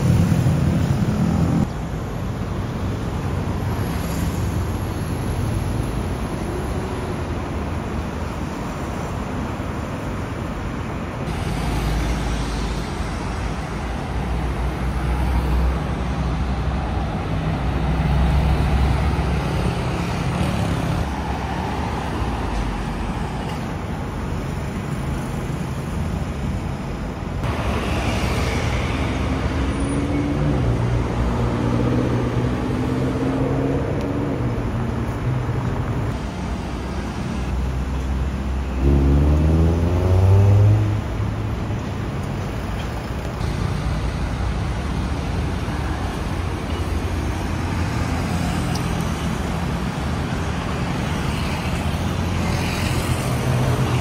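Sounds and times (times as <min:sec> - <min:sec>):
cars driving past: 0:27.4 - 0:54.0.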